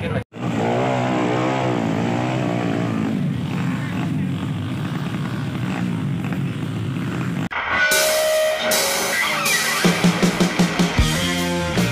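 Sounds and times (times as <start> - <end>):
dirt bike engines: 0.0 - 7.5
rock music with guitar and drums: 7.5 - 11.9.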